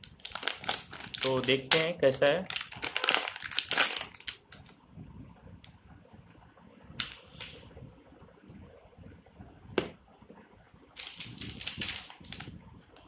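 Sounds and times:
plastic packaging crackling: 0:00.0 - 0:04.7, 0:11.0 - 0:12.6.

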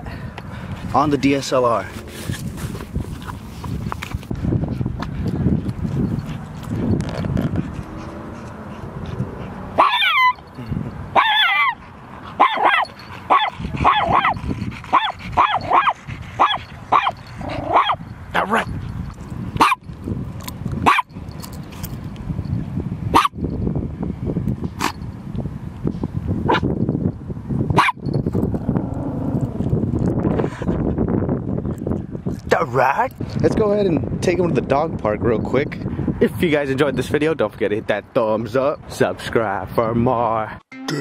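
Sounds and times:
small dog barking: 0:09.8 - 0:10.4, 0:11.2 - 0:11.8, 0:12.4 - 0:18.0, 0:19.6 - 0:19.8, 0:20.8 - 0:21.1, 0:23.2 - 0:23.4, 0:27.8 - 0:28.0.

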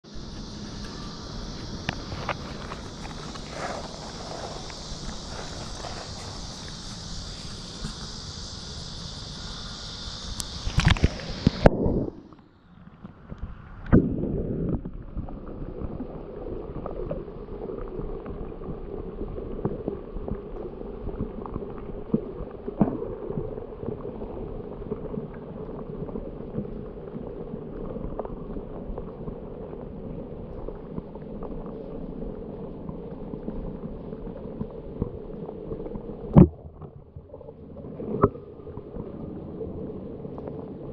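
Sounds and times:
underwater hum: 0:00.0 - 0:40.9
water splashes: 0:00.2 - 0:12.4.

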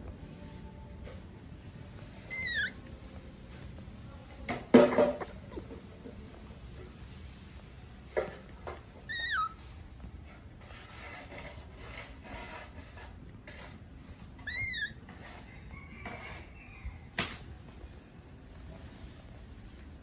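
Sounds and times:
baby monkey cooing: 0:02.2 - 0:02.8, 0:09.0 - 0:09.6, 0:14.4 - 0:15.0.

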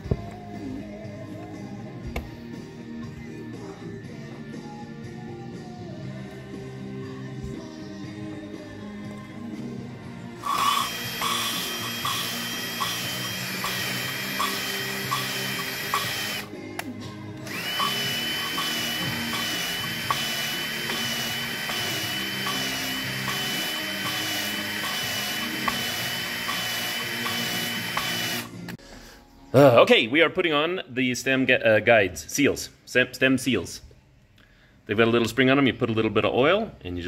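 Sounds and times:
music: 0:00.0 - 0:37.0
electric drill whining: 0:10.4 - 0:16.5, 0:17.4 - 0:28.7.

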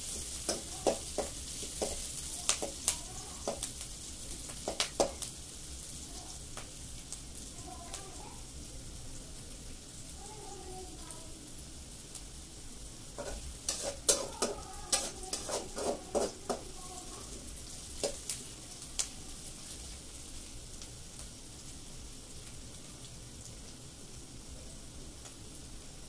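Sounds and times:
onion sizzling: 0:00.0 - 0:26.0
metal spatula scraping a pan: 0:13.2 - 0:16.8.

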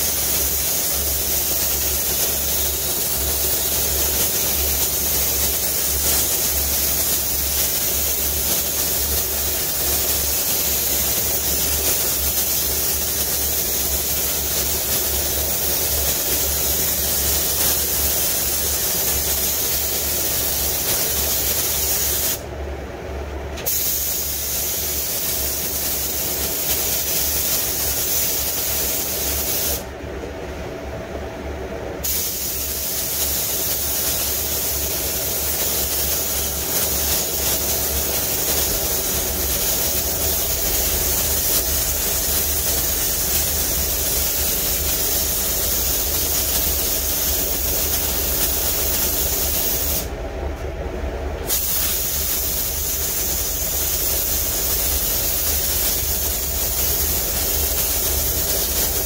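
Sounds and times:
paint spray gun hissing: 0:00.0 - 0:22.4, 0:23.6 - 0:29.9, 0:32.0 - 0:50.1, 0:51.4 - 0:59.0.

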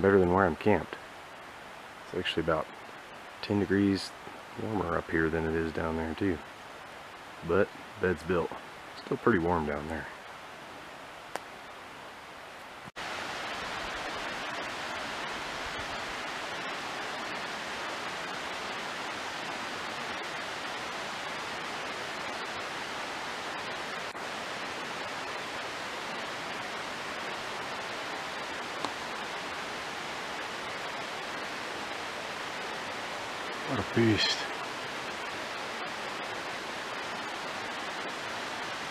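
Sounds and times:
steady rushing noise: 0:12.8 - 0:38.9.

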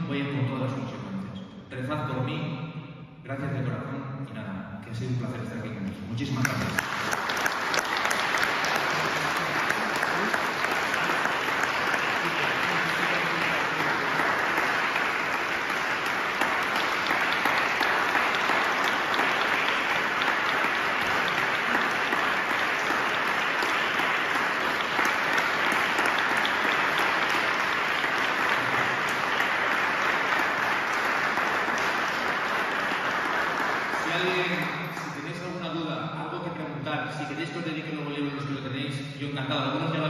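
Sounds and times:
audience applauding: 0:06.4 - 0:35.7.

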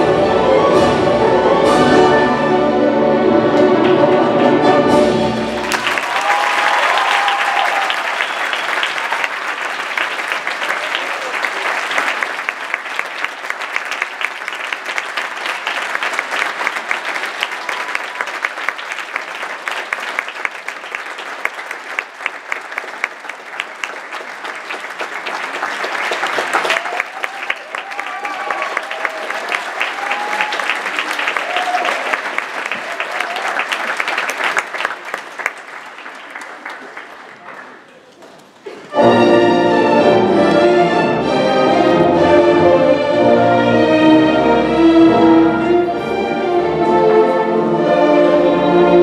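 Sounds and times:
orchestral ballet music: 0:00.0 - 0:05.9, 0:38.9 - 0:49.0
audience applause: 0:03.6 - 0:38.9
audience whooping: 0:05.6 - 0:12.2, 0:26.2 - 0:34.5.

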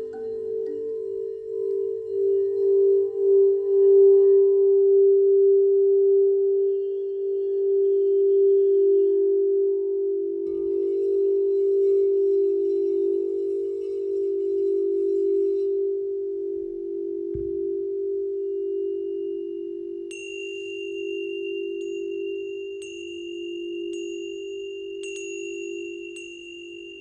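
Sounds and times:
singing bowl ringing: 0:00.0 - 0:27.0.

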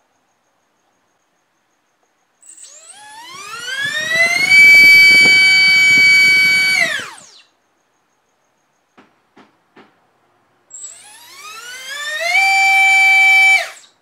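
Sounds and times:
electric motor whine: 0:02.5 - 0:07.4, 0:10.8 - 0:13.9.

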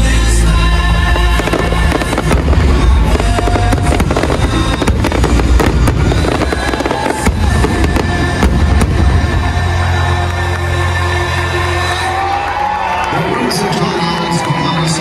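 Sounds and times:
music playing: 0:00.0 - 0:15.0
fireworks bursting: 0:01.0 - 0:11.1.

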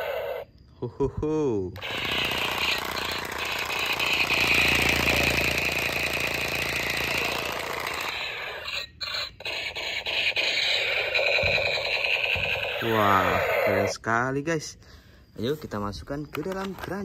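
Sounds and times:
toy blaster buzzing rattle: 0:00.0 - 0:00.5, 0:01.8 - 0:13.9.

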